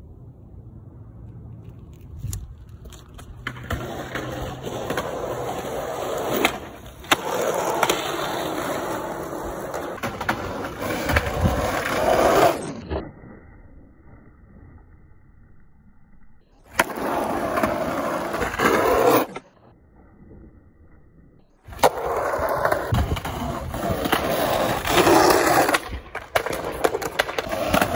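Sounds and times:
skateboard wheels rolling on asphalt: 0.0s - 27.9s
skateboard clacking: 2.2s - 13.0s, 16.7s - 19.5s, 21.7s - 27.9s.

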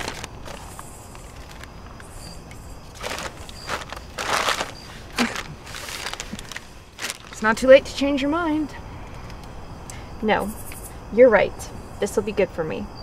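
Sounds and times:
rustling and crinkling: 0.0s - 7.8s
low background rumble: 0.0s - 10.2s.

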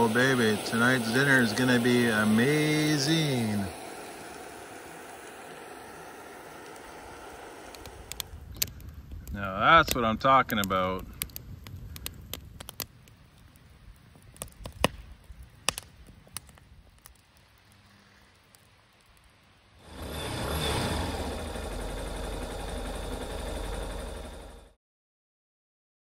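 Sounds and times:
loud rushing noise: 0.0s - 8.3s, 19.8s - 24.6s
wood fire crackling and popping: 0.0s - 20.8s.

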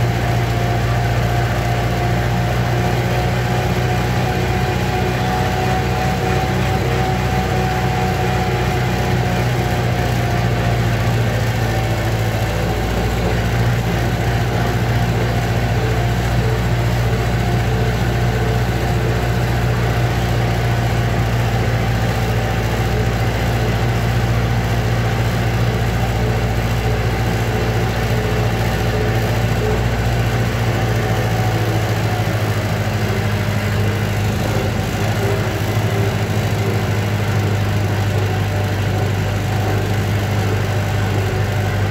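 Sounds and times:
tractor engine running: 0.0s - 41.9s.

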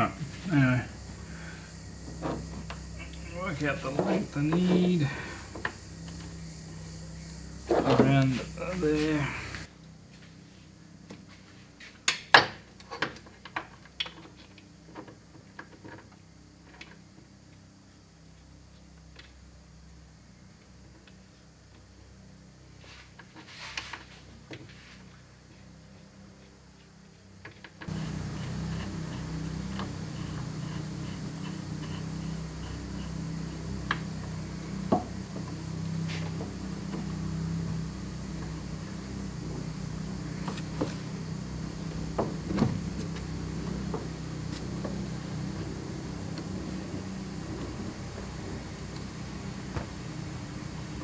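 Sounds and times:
steady low hum: 0.0s - 12.0s, 24.0s - 51.0s.

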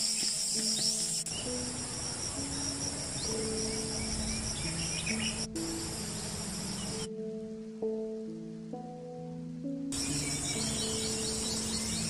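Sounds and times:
insects chorus: 0.0s - 7.1s, 10.0s - 12.0s
soft background music: 0.0s - 12.0s.

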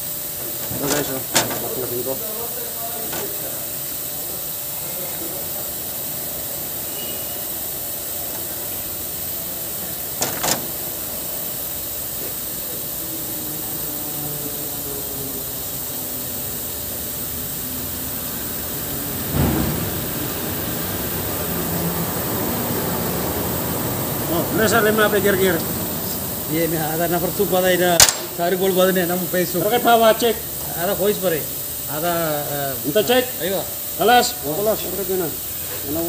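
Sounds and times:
air valve hissing: 0.0s - 36.0s
sharp metallic clicks: 28.0s - 28.4s.

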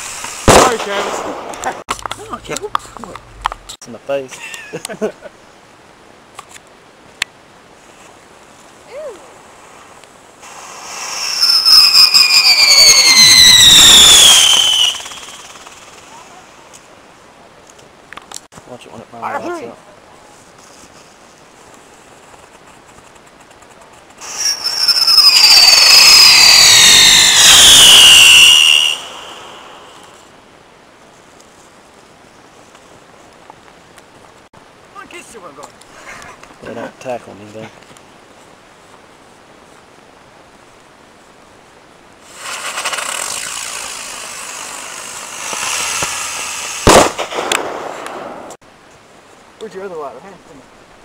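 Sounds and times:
firework bang: 0.0s - 1.8s, 45.4s - 48.6s
hissing spray of sparks: 0.0s - 1.8s, 9.5s - 16.8s, 24.1s - 30.2s, 42.2s - 48.0s
firework sputtering: 0.0s - 3.8s, 9.4s - 16.9s, 22.3s - 30.3s, 42.2s - 48.6s
shrieking firework whistle: 10.6s - 16.0s, 24.2s - 30.1s, 42.4s - 47.8s.

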